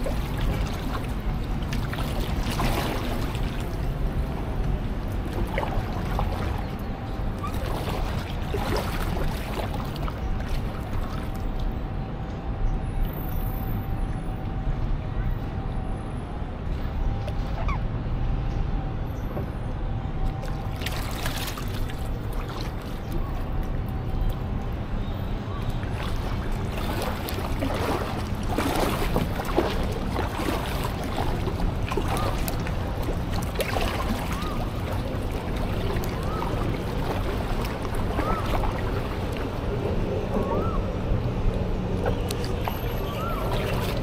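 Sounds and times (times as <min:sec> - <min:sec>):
paddle splashing in water: 0:00.0 - 0:11.7, 0:20.4 - 0:23.6, 0:25.4 - 0:40.8, 0:41.5 - 0:44.0.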